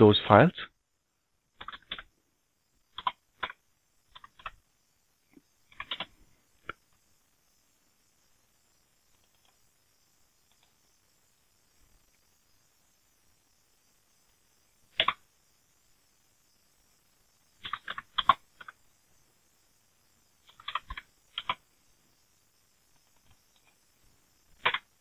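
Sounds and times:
keyboard typing: 1.6 - 2.1, 2.9 - 4.6, 5.7 - 6.8, 9.1 - 9.6, 10.4 - 10.8, 14.9 - 15.2, 17.6 - 18.8, 20.4 - 21.6, 24.5 - 24.9.

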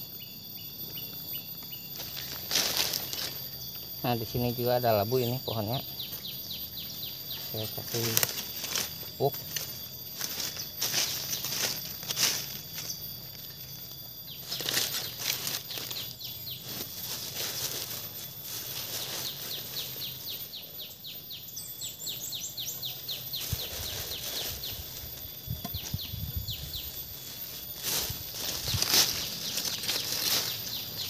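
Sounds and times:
high insect drone: 0.0 - 31.0
rustling and scraping of manure: 1.2 - 20.6, 22.7 - 31.0.

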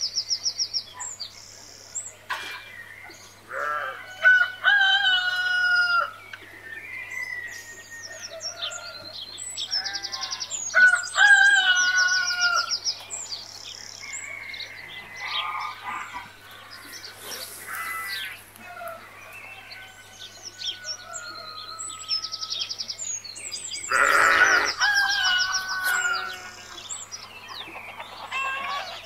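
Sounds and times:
chickens calling: 2.3 - 13.2, 14.0 - 29.0
small birds chirping: 6.1 - 29.0
loud animal call: 23.9 - 26.6.

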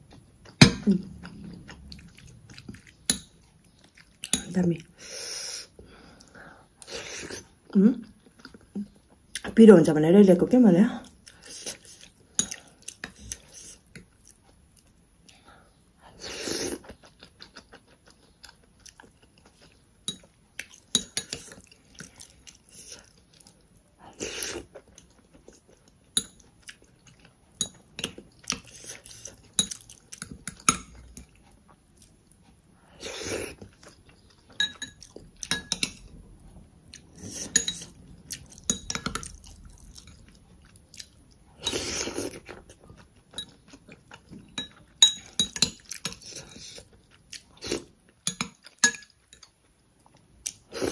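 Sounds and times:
chewing: 16.7 - 36.1, 36.9 - 50.9
metal spoon scraping glass cup: 37.5 - 37.9.

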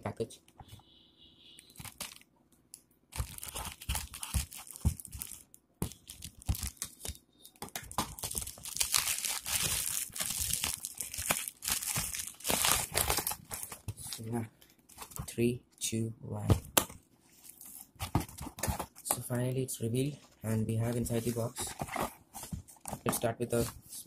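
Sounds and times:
plastic wrapping crinkling and tearing: 1.8 - 2.2, 3.1 - 14.3.

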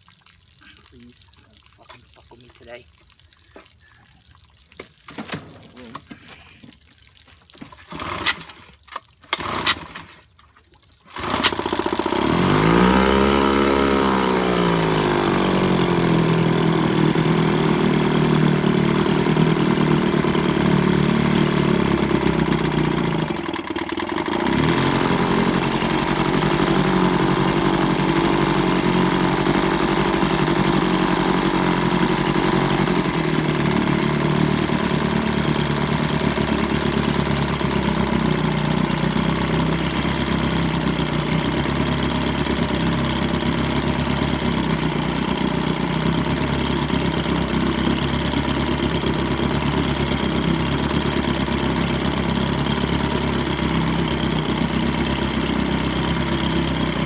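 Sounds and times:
outboard motor knocks: 4.8 - 6.3
outboard motor running: 7.5 - 57.0.

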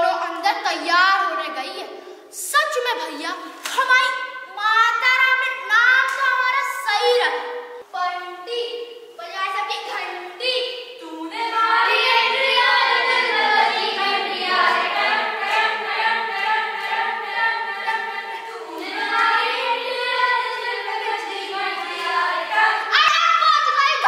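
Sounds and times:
group of young voices singing: 10.4 - 24.0.

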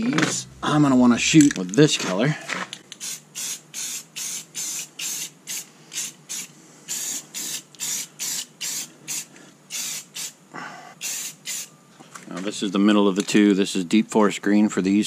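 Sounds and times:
spray paint can bursts: 3.0 - 10.4, 11.0 - 11.7.

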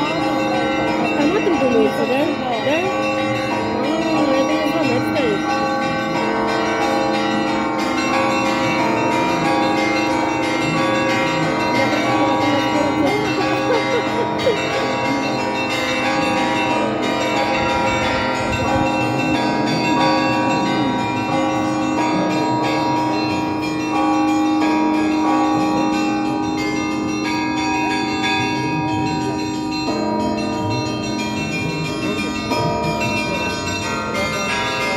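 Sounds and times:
church bells ringing: 0.0 - 34.9.

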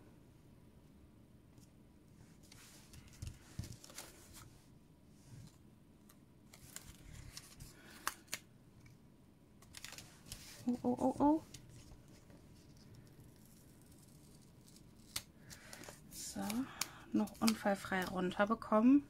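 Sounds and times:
paper rustling and ticking: 2.4 - 4.2, 9.6 - 18.2.

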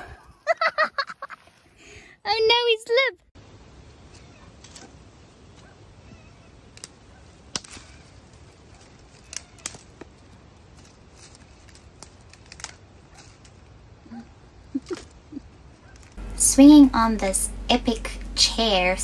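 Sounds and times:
dry sticks snapping: 6.7 - 13.7, 15.8 - 16.2.

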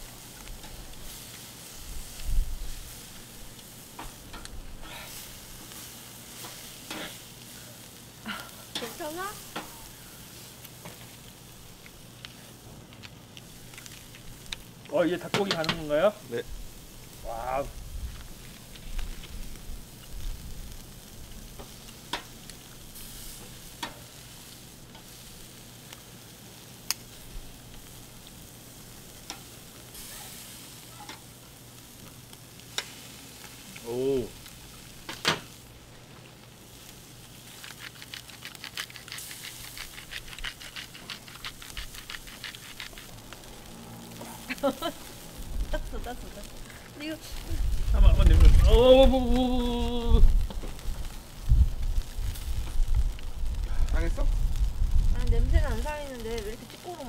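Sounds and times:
meat sizzling on grill: 0.0 - 57.0
metal tongs scraping grill: 0.2 - 7.9, 8.6 - 11.2, 11.8 - 16.1, 21.5 - 25.5, 29.2 - 31.3, 32.7 - 35.6, 36.8 - 45.0.

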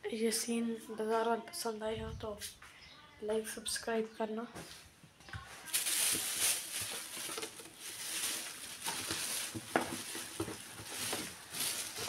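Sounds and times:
rustling and handling noises: 4.6 - 12.0.

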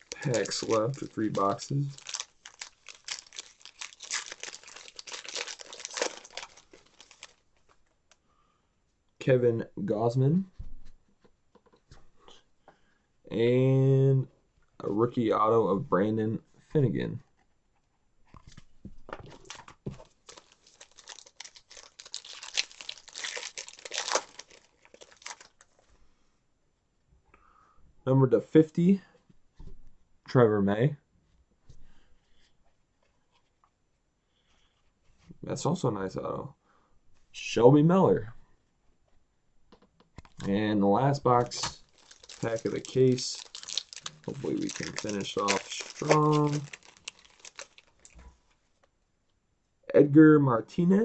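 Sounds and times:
foil wrapper tearing and crinkling: 0.0 - 7.4, 19.3 - 25.7, 41.5 - 48.2.

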